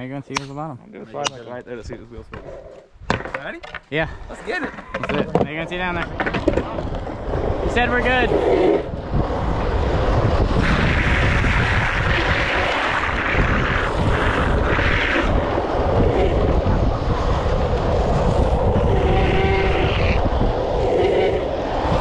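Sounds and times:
wind rushing over microphone: 4.0 - 22.0
wheels rolling on asphalt: 4.4 - 22.0
wheel squeal: 18.4 - 21.6.

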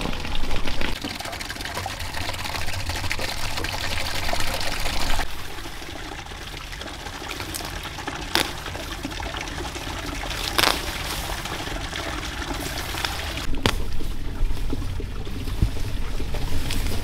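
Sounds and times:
water pouring and trickling: 0.0 - 17.0.

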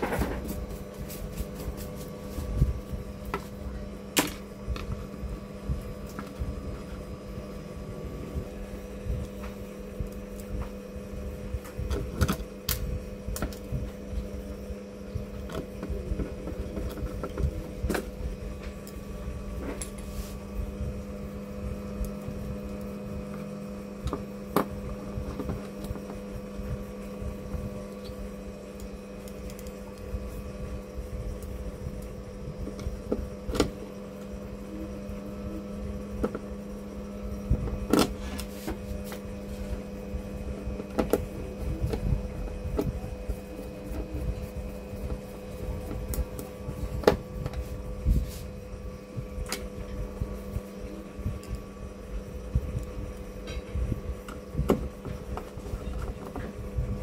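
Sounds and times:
steady hum: 0.0 - 57.0.

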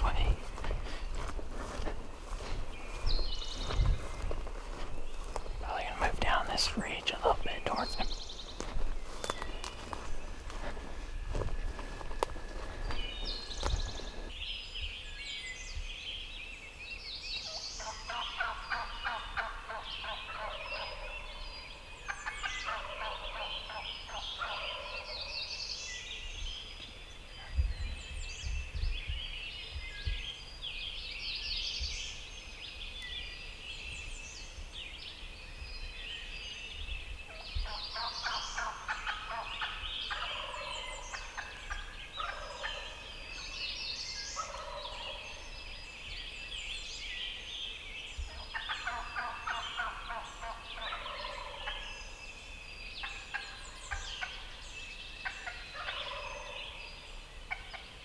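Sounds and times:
songbirds chirping: 0.0 - 58.0
turkey gobbling: 22.2 - 25.1, 37.7 - 43.0, 44.4 - 45.1, 48.5 - 51.8, 55.2 - 56.6.

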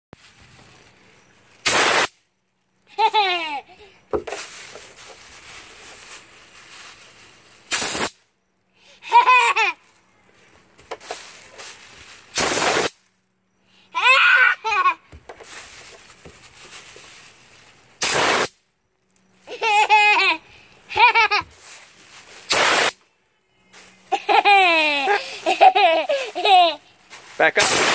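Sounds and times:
compressed air blasts: 1.6 - 2.2, 7.6 - 8.2, 11.0 - 13.0, 18.0 - 18.6, 22.3 - 23.0, 27.4 - 27.9
child laughing: 2.9 - 4.0, 8.9 - 9.9, 13.9 - 15.1, 19.4 - 21.5, 24.0 - 27.0.

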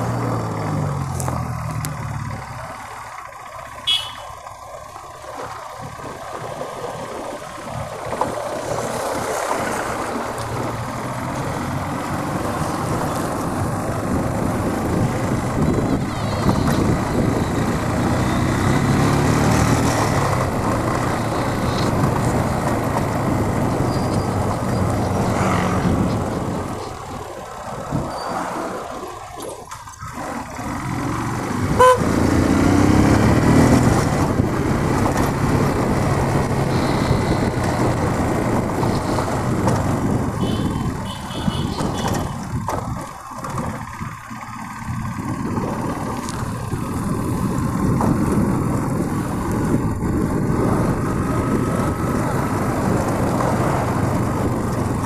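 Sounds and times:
motorcycle engine running: 0.0 - 55.0
short horn toot: 3.9 - 4.4, 31.8 - 32.1.

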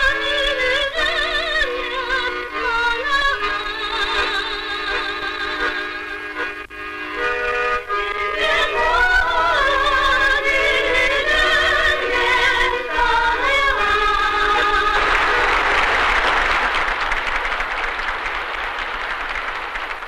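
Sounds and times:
woman singing with vibrato: 0.0 - 6.4, 8.0 - 15.5
applause: 14.6 - 20.0.

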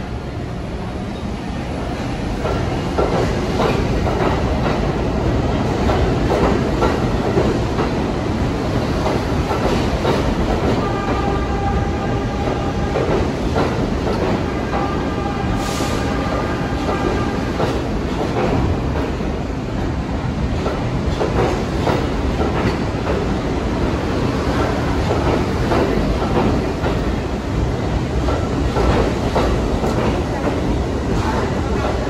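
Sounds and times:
train rumble: 0.0 - 32.0
train wheels clacking over rail joints: 2.4 - 4.9, 5.6 - 8.0, 8.9 - 11.6, 12.4 - 15.3, 16.0 - 19.2, 20.6 - 23.4, 24.4 - 27.2, 28.1 - 32.0.

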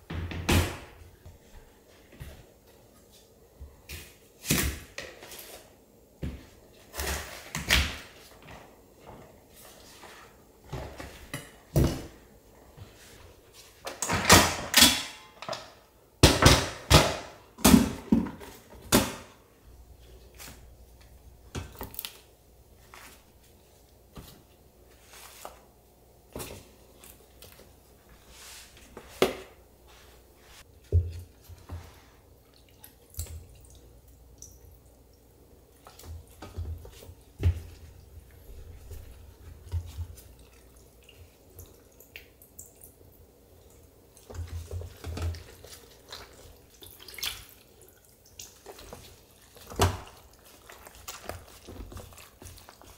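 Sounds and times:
wet handling of meat: 30.6 - 52.9.

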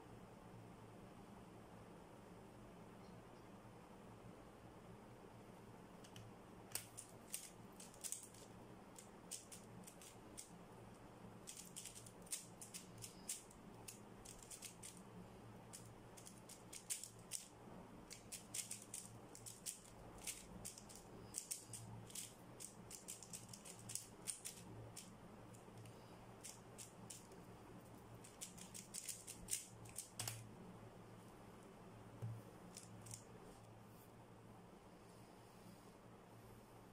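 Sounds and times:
plastic cube clicking: 6.1 - 10.5, 11.5 - 15.0, 15.7 - 17.5, 18.1 - 25.1, 28.2 - 30.4.

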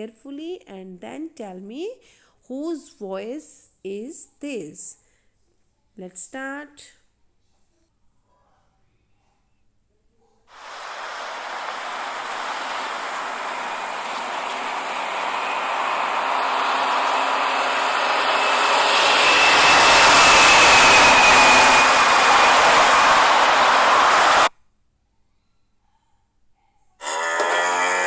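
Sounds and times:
faint steady whine: 10.5 - 24.5
large vehicle rushing noise: 10.5 - 24.5.

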